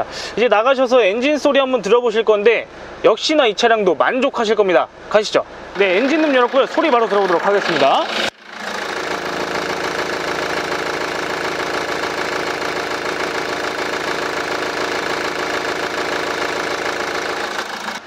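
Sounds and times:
diesel engine idling: 5.5s - 18.0s.

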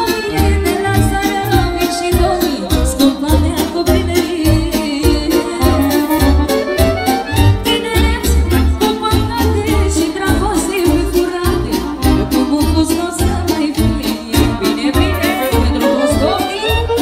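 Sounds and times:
woman singing: 0.0s - 6.6s, 7.3s - 17.0s
electronic keyboard: 5.0s - 8.9s
clarinet: 5.6s - 7.8s, 14.9s - 17.0s.

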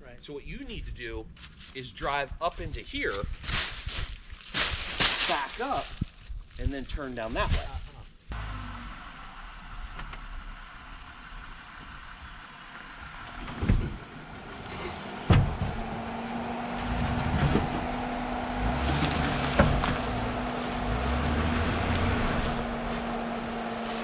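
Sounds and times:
car engine running: 8.3s - 24.0s.

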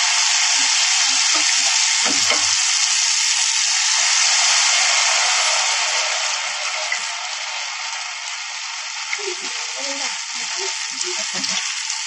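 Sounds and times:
batter sizzling in hot ghee: 0.0s - 12.0s.

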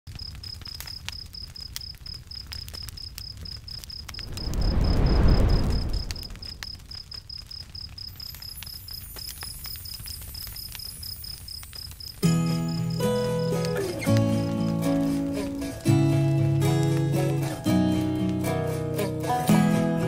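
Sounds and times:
cricket chirping: 0.1s - 15.6s
bonfire crackling and popping: 0.1s - 20.0s
low whoosh: 4.2s - 6.8s.

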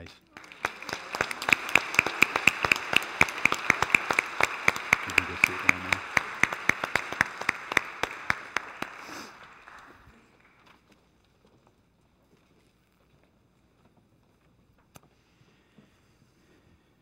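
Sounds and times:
congregation applauding: 0.3s - 10.9s
loud close clapping: 0.4s - 10.8s.

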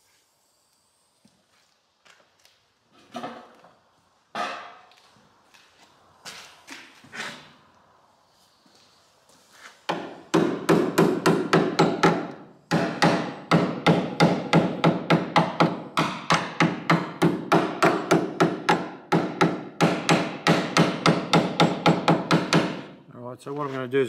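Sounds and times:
hammer on sheet steel: 9.9s - 22.9s.

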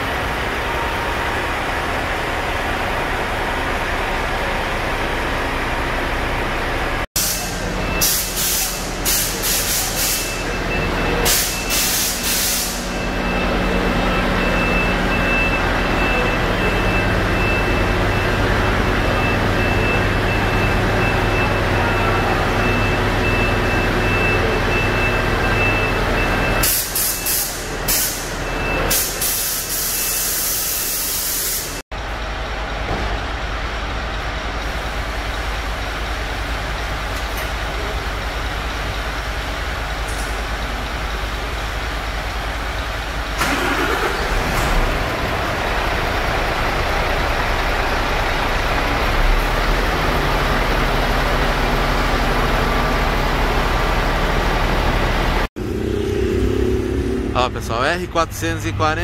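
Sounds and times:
diesel trucks idling: 0.0s - 59.0s.

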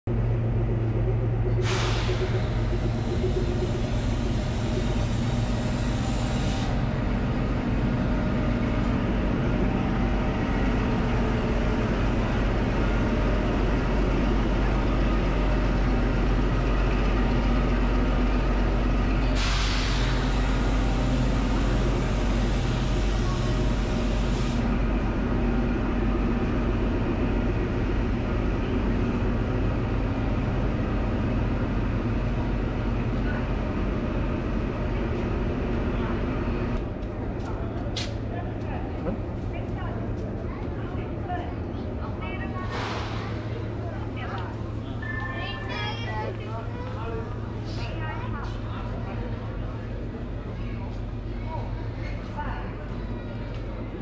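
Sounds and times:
diesel engine idling: 0.1s - 33.2s.

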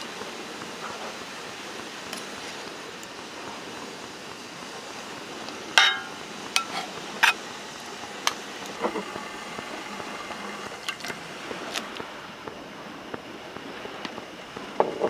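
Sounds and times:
steady hiss: 0.0s - 15.0s
cookware clinking: 5.8s - 7.4s.

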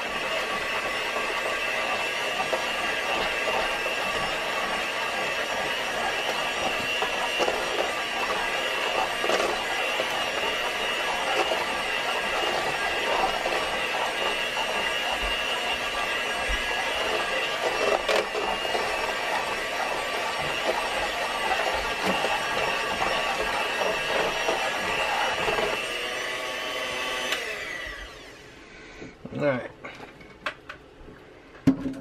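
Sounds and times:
electric hand mixer whining: 0.0s - 28.7s.

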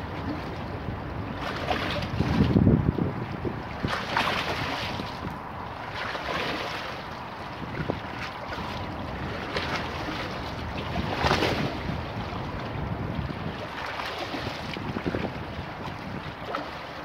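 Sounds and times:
wind buffeting microphone: 0.0s - 17.0s
river waves splashing on stone steps: 3.5s - 17.0s.

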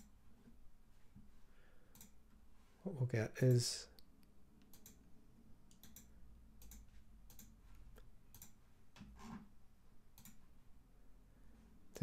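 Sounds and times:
computer mouse clicks: 1.9s - 2.2s, 4.0s - 5.0s, 5.7s - 9.1s, 10.2s - 10.4s.

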